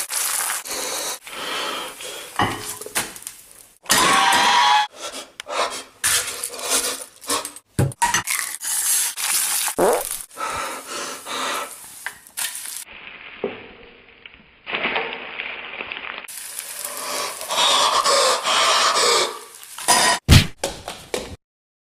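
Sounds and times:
eggs sizzling: 0.0s - 4.6s, 8.2s - 13.5s, 14.2s - 20.2s.

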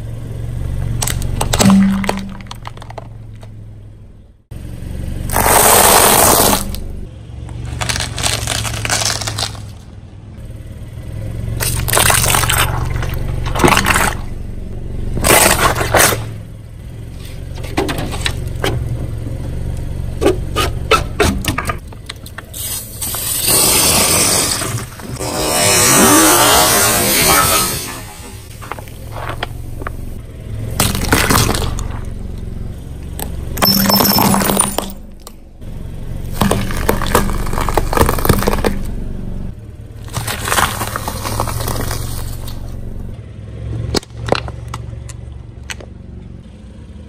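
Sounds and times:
car engine running low: 0.0s - 47.0s
tyre crushing plastic toys: 1.0s - 3.5s, 7.6s - 9.9s, 15.2s - 16.3s, 30.7s - 32.0s, 36.3s - 38.9s, 40.0s - 42.9s
soda bottle bursting: 5.3s - 6.7s.

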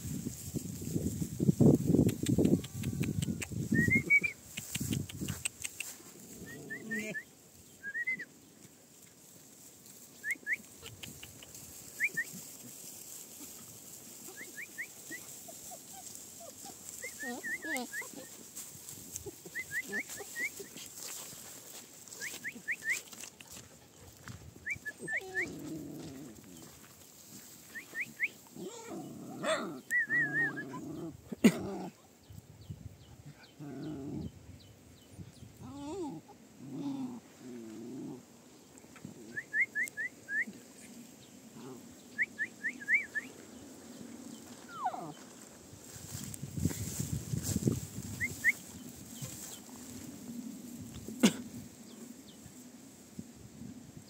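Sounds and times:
dog whimpering: 15.7s - 18.3s, 28.6s - 29.4s, 35.7s - 37.2s.

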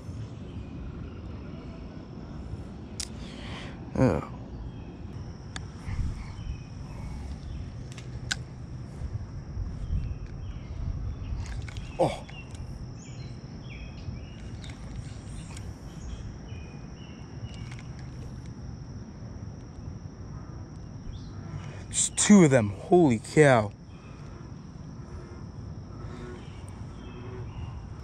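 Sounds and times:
low rumbling noise: 0.0s - 19.4s, 23.7s - 28.0s
high-pitched hum: 0.0s - 28.0s.

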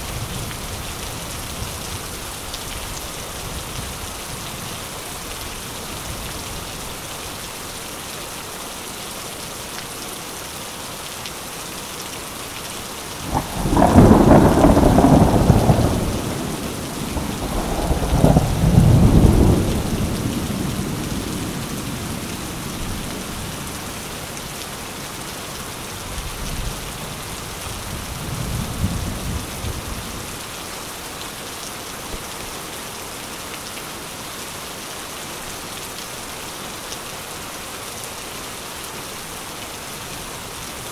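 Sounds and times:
steady rain: 0.0s - 40.9s
thunder rumbling: 13.2s - 24.0s.

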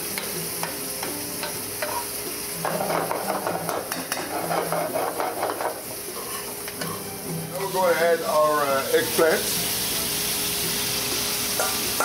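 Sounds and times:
vegetables sizzling in oil: 0.0s - 12.0s
utensil scraping a pan: 2.7s - 7.1s.

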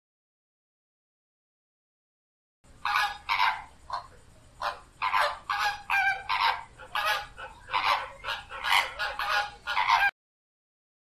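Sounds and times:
flamingos honking: 2.8s - 10.1s.

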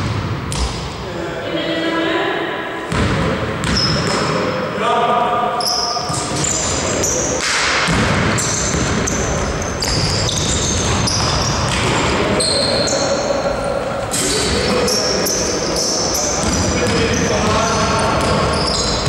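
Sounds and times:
basketball bouncing: 0.0s - 0.8s, 2.9s - 4.4s, 7.4s - 12.2s, 16.4s - 19.0s
sneakers squeaking on court: 2.9s - 4.4s, 5.6s - 19.0s.

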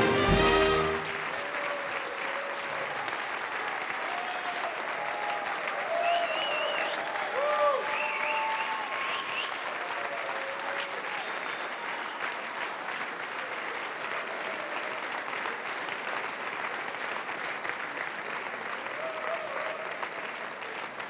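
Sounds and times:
audience applauding: 0.0s - 21.0s.

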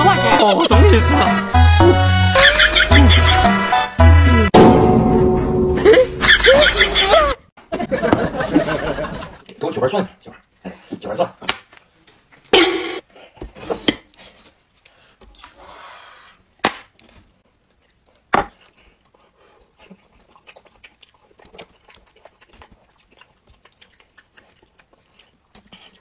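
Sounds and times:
eating sounds: 13.1s - 26.0s.

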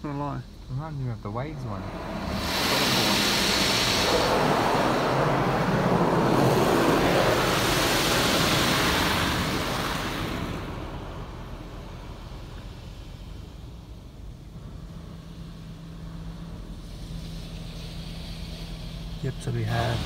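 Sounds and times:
water spray hitting car roof: 1.8s - 12.3s.

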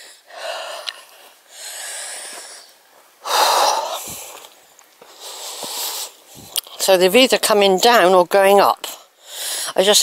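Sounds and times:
person breathing heavily: 0.0s - 6.6s, 9.1s - 9.8s.

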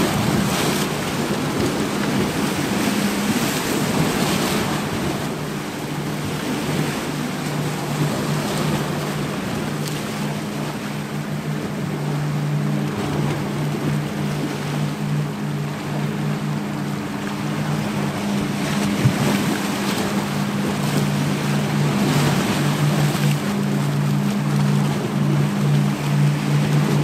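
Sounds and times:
waves breaking over rocks: 0.0s - 27.0s.

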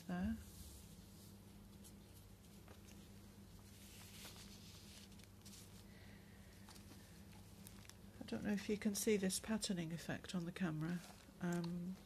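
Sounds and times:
low steady hum: 0.0s - 12.0s
paper pages rustling: 1.7s - 5.9s, 6.6s - 8.6s, 10.9s - 12.0s.

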